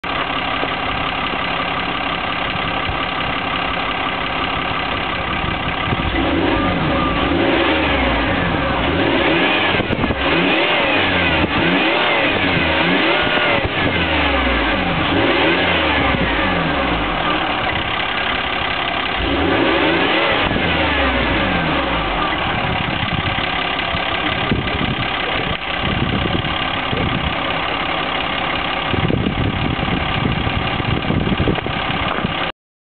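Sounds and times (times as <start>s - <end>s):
diesel engine idling and revving: 0.0s - 32.5s.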